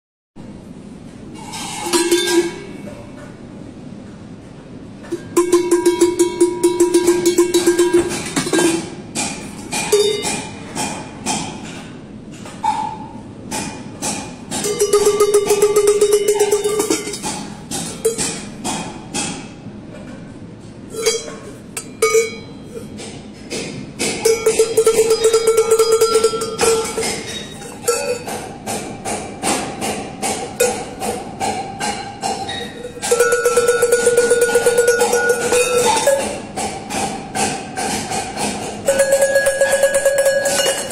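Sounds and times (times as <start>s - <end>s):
sheep bells clanking: 24.2s - 28.3s, 32.5s - 36.4s, 38.9s - 40.9s.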